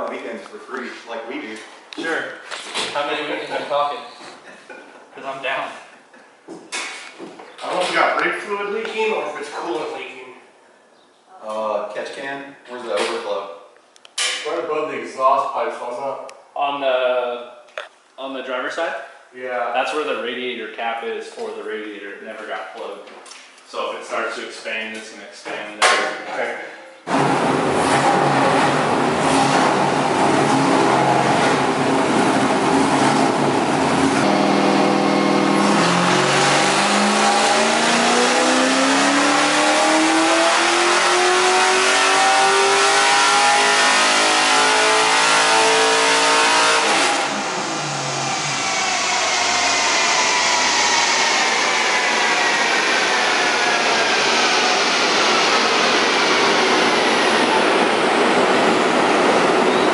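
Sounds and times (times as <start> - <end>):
car engine revving at full throttle: 27.1 - 59.9
dyno rollers whine: 27.1 - 59.9.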